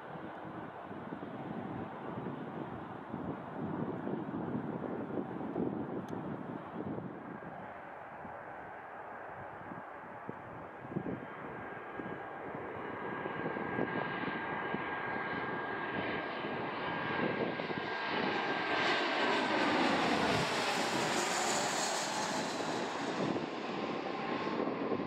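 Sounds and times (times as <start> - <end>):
jet engine high whine: 0.0 - 25.0
jet engine rushing: 11.0 - 25.0.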